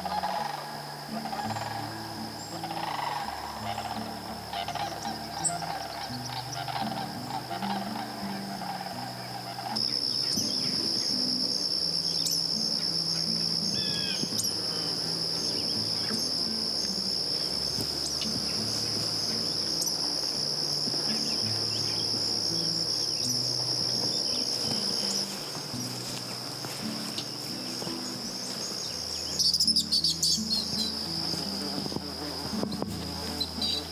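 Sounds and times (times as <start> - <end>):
bird chirps: 0.0 - 32.0
insects chirping: 0.0 - 33.9.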